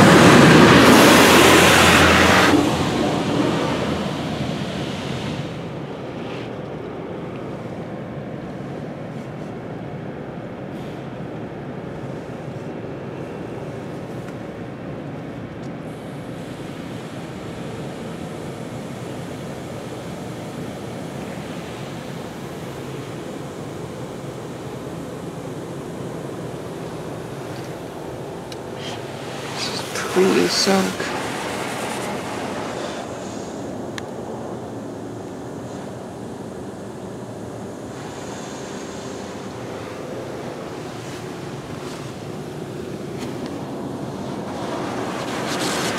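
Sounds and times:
car wash water spraying: 0.0s - 15.1s, 15.8s - 45.9s
water spray beating on car: 37.9s - 45.9s.

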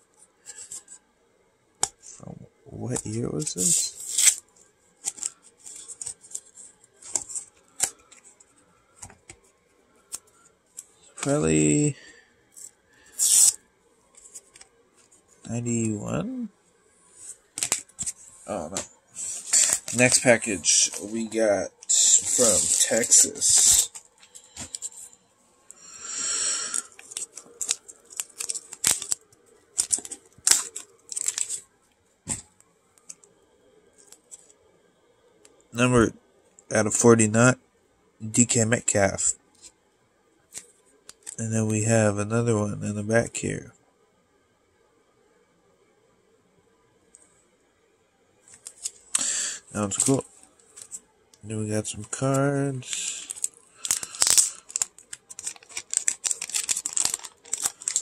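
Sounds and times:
plastic and tape crinkling: 3.0s - 9.4s, 17.2s - 25.2s, 26.4s - 31.7s, 49.8s - 51.0s, 52.1s - 58.0s
packaging ripping: 3.6s - 4.4s, 13.2s - 13.6s, 19.2s - 25.0s, 26.3s - 29.2s, 29.8s - 31.6s, 52.8s - 58.0s.

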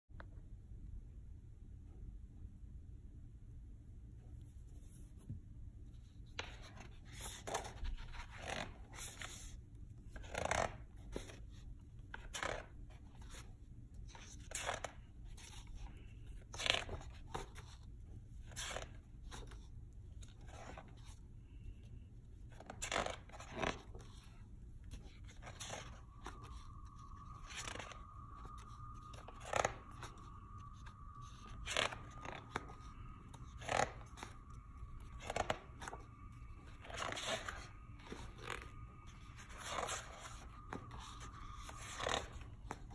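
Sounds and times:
book pages turning: 6.0s - 42.9s
faint steady tone: 23.5s - 42.9s.

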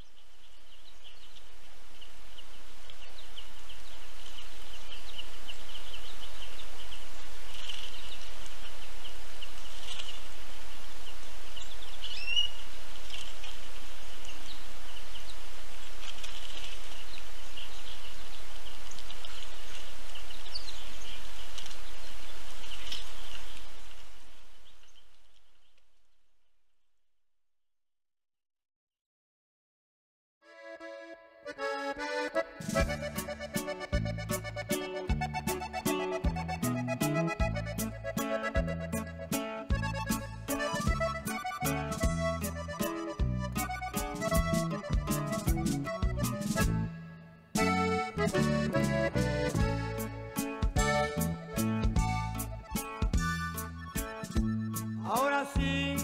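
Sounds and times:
steady outdoor hiss: 0.0s - 25.8s, 32.4s - 55.0s
birds chirping and calling: 11.6s - 13.6s.

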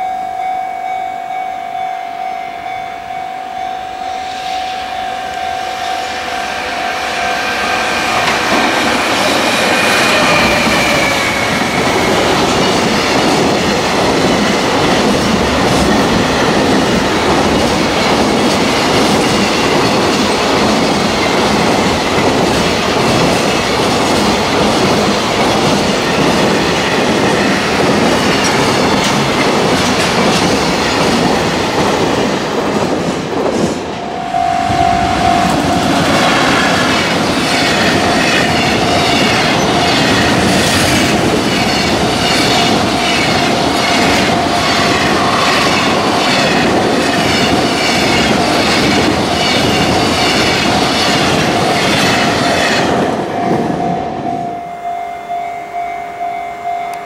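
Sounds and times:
steady high tone: 0.0s - 13.0s, 33.8s - 48.2s, 52.9s - 57.0s
train wheels clattering over joints: 7.8s - 33.9s.

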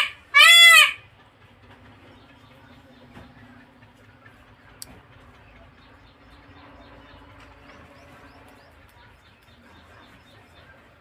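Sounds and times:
small birds chirping: 1.6s - 11.0s.

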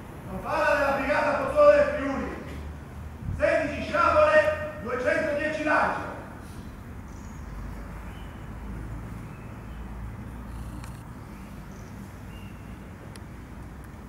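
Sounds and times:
sharp clicks: 10.5s - 11.1s.

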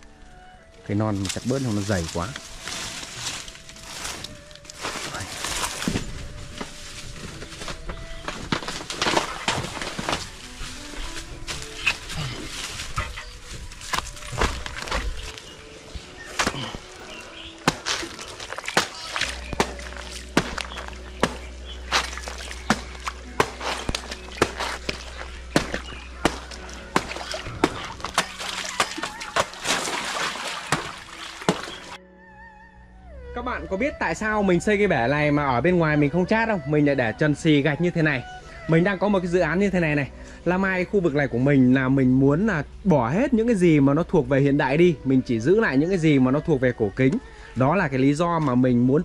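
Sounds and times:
dry leaves rustling: 0.8s - 32.0s
knife chopping stalks: 17.6s - 32.0s
pieces splashing into water: 17.6s - 32.0s.

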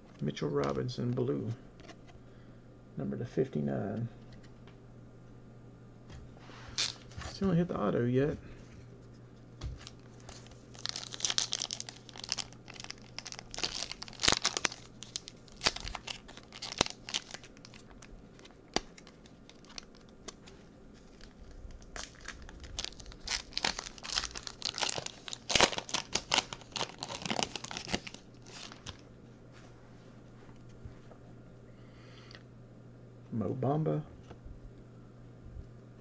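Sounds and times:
foil pack being torn open: 6.7s - 7.0s, 9.8s - 20.4s, 21.1s - 29.0s
foil pack crinkling: 6.7s - 7.4s, 9.6s - 29.0s.

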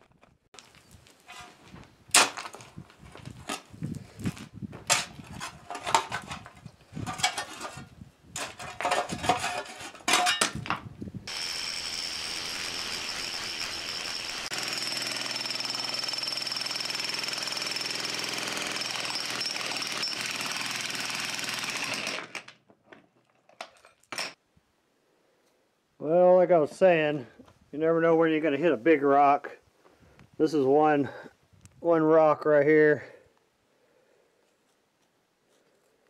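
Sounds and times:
spade scraping rocky dirt: 0.6s - 10.7s
jackhammer breaking ground: 11.3s - 22.5s.

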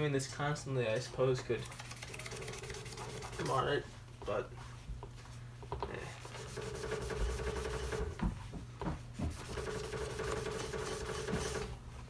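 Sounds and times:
steady hum: 0.0s - 12.0s
foam eraser scrubbing vinyl: 2.2s - 4.8s, 6.2s - 8.2s, 9.2s - 11.7s.

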